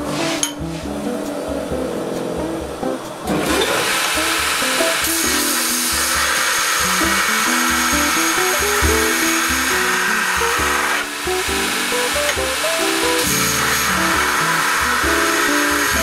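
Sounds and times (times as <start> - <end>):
background music with a beat: 0.0 - 16.0
grinding machine abrasive hiss: 3.4 - 16.0.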